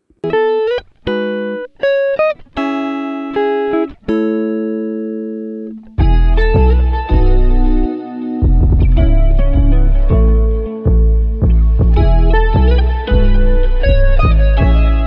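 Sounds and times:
fuller music with deep bass: 6.0s - 15.0s.

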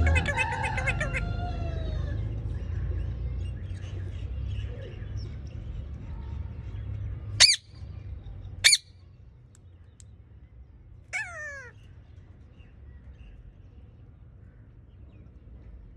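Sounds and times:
parakeet screeching: 7.4s - 7.7s, 8.6s - 8.8s, 11.1s - 11.8s.

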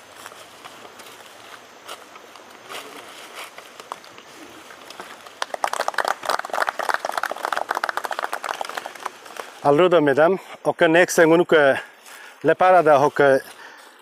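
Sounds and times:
faint outdoor background: 0.0s - 14.0s
people clapping: 4.8s - 9.8s.

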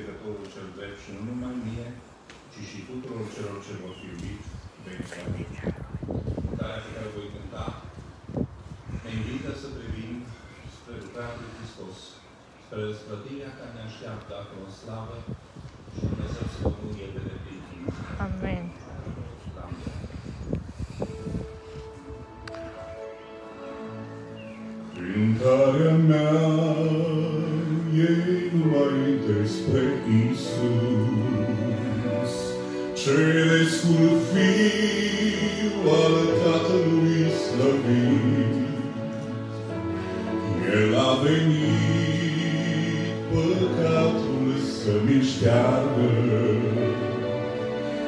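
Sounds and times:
instrumental accompaniment: 21.1s - 48.0s
man singing a hymn: 23.6s - 48.0s.

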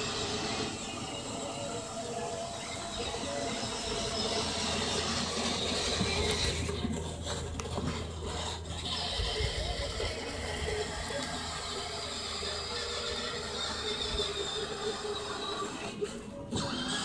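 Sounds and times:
steady outdoor hiss: 0.0s - 17.0s
toy car electric motor whining: 0.0s - 17.0s.

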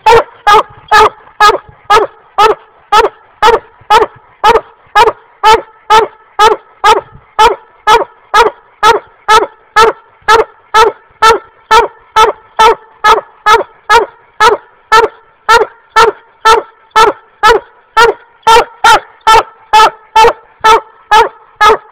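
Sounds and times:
hound barking rapidly: 0.0s - 21.9s.

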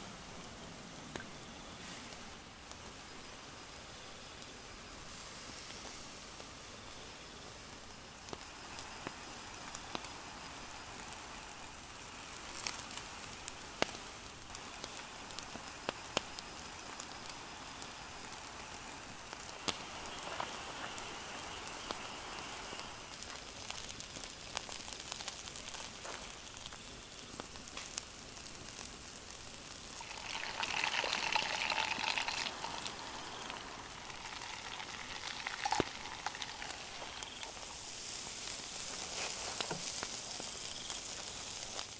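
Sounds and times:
steak sizzling on grill: 1.4s - 41.9s
pops and crackles: 7.8s - 41.9s.

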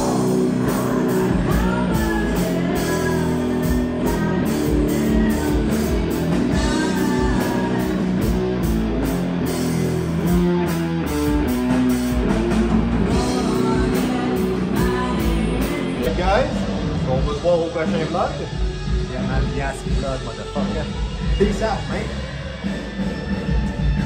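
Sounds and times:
woman singing: 0.0s - 8.4s, 13.1s - 16.1s
drum kit: 0.0s - 24.0s
electric guitars: 0.0s - 24.0s.

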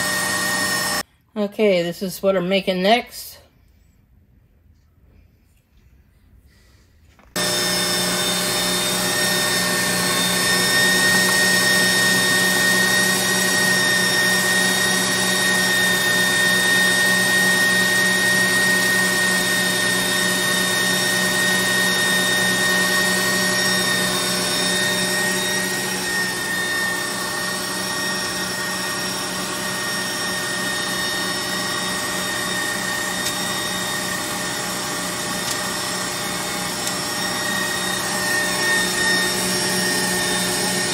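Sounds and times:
stand mixer motor whining: 0.0s - 1.0s, 7.3s - 40.9s.

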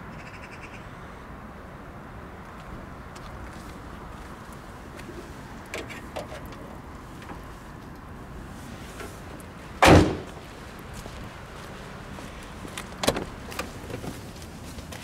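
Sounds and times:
car door shutting: 9.8s - 10.4s, 13.0s - 14.2s.

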